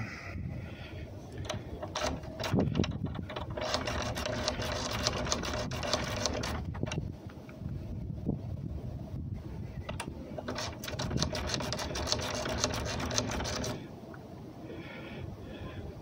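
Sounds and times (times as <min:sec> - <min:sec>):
lock pick clicking in lock: 0:01.4 - 0:07.0.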